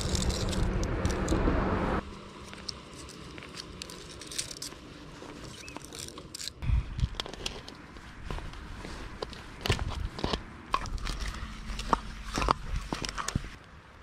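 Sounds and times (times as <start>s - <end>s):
steady rushing noise: 0.0s - 2.2s
hands handling plastic line: 2.3s - 13.7s.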